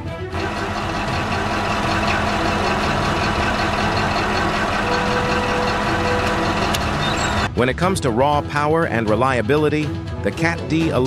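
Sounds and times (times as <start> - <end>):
bulldozer diesel engine running: 0.3 - 7.5.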